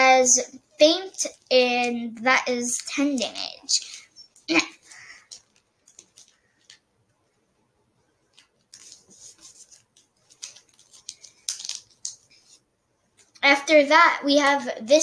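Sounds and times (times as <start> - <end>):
trading cards flicking and sliding: 3.0 - 6.8, 8.3 - 12.6.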